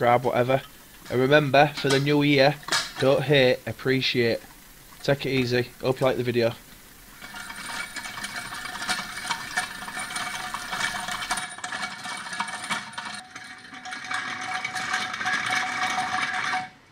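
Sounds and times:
hand-cranked gears whirring and clicking: 7.0s - 16.8s.

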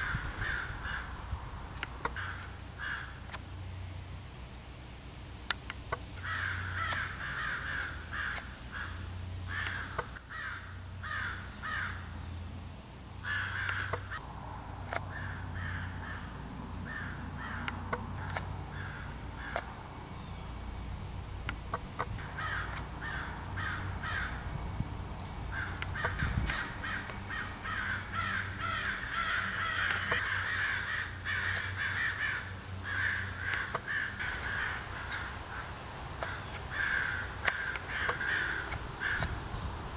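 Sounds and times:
crows cawing: 0.0s - 1.2s, 2.0s - 3.3s, 6.2s - 12.1s, 13.2s - 14.2s, 14.9s - 19.7s, 22.2s - 24.5s, 25.5s - 39.4s.

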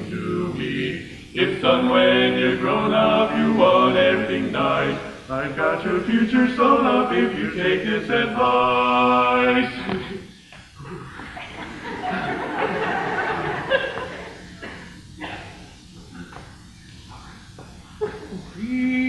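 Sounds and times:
male vocal quartet singing: 0.0s - 10.3s.

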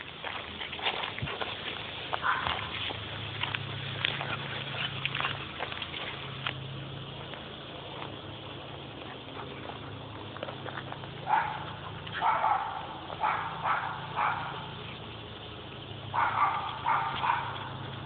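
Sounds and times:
dog barking: 2.2s - 2.7s, 11.2s - 14.7s, 16.1s - 17.8s.

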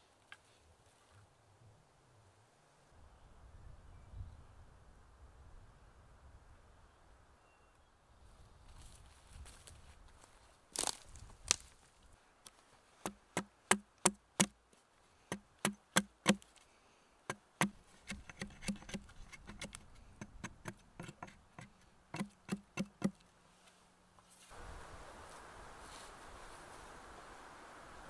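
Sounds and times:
hatchet chopping wood: 13.0s - 14.6s, 15.3s - 16.4s, 17.3s - 23.2s.

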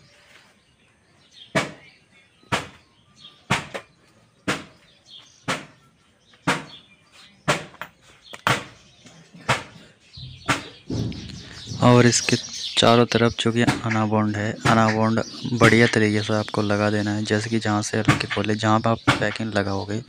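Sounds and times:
faint bird chirps: 0.0s - 20.0s
sharp knocks: 1.5s - 1.8s, 2.5s - 2.8s, 3.5s - 4.7s, 5.4s - 5.7s, 6.4s - 6.8s, 7.5s - 8.8s, 9.5s - 13.0s, 13.6s - 15.0s, 18.0s - 18.5s, 19.1s - 19.5s.

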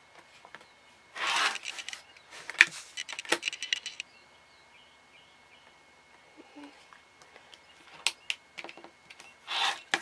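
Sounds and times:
rotary cutter rasping through fabric: 1.2s - 1.8s, 9.5s - 10.0s.

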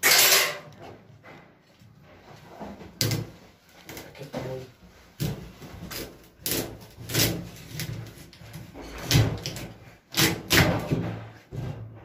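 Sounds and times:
knife chopping on wooden board: 9.0s - 11.2s.

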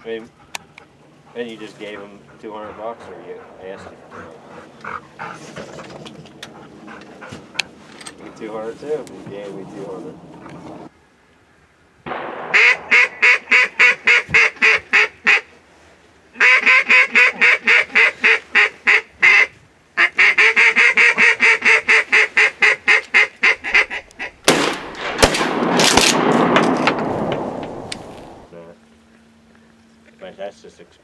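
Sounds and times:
steady rushing noise: 1.3s - 10.9s, 12.0s - 14.7s, 24.8s - 28.7s
sharp crack: 12.0s - 15.1s, 23.8s - 28.5s
duck call quacks: 12.5s - 15.5s, 16.4s - 24.4s.

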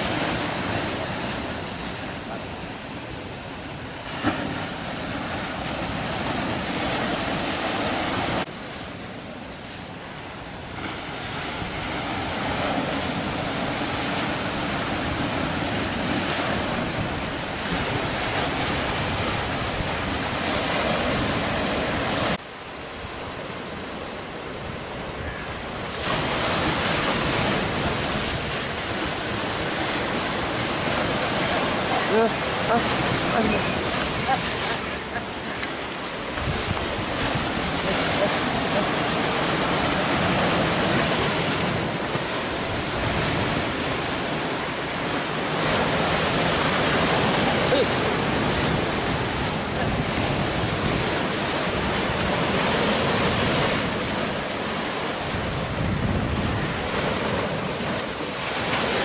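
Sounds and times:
surf breaking over rocks: 0.0s - 59.0s.

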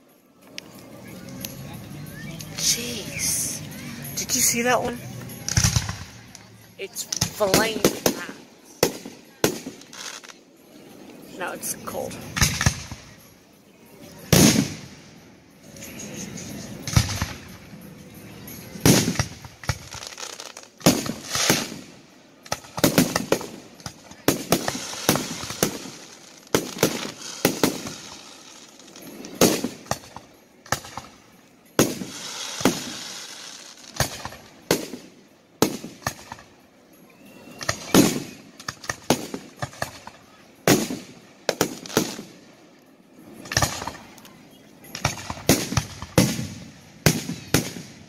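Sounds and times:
fireworks crackling: 0.0s - 48.0s
fireworks bangs: 2.6s - 10.4s, 14.2s - 15.2s, 18.5s - 36.6s, 37.5s - 42.4s, 43.4s - 44.2s, 44.8s - 48.0s.

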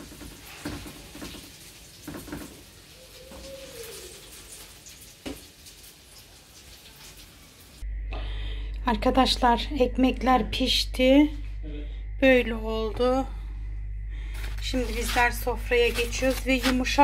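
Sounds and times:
dough sizzling in oil: 0.0s - 7.8s
short low tone: 7.8s - 9.1s, 11.4s - 12.2s.

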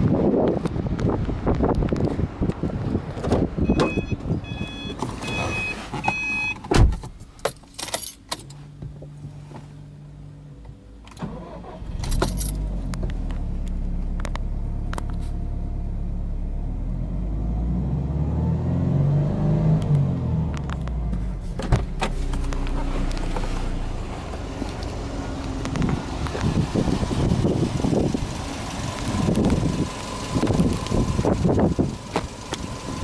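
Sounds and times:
car electronic chime beeping: 3.6s - 6.6s
car door thumping shut: 6.7s - 7.1s
car engine starting and idling: 7.8s - 33.0s.

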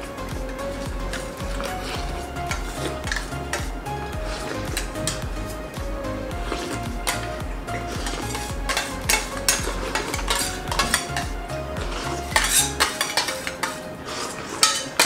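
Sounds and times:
background music with low beat: 0.0s - 15.0s
spoons clinking on steel plates: 8.1s - 11.2s, 12.4s - 15.0s.

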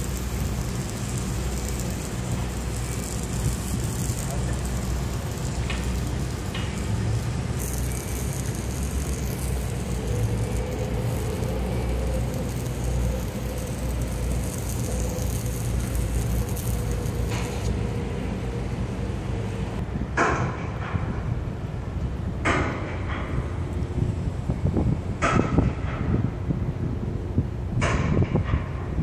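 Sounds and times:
thin high hiss: 0.0s - 17.9s
low engine rumble: 0.0s - 20.2s.

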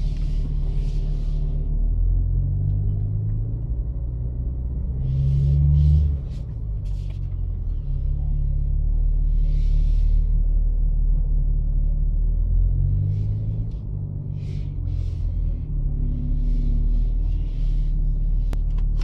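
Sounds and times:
car engine running low: 0.0s - 19.0s.

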